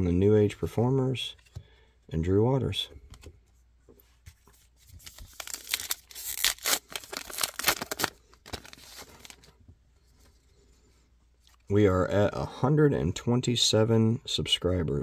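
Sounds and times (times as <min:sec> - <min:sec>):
wrapper tearing and crinkling: 0:05.0 - 0:09.5.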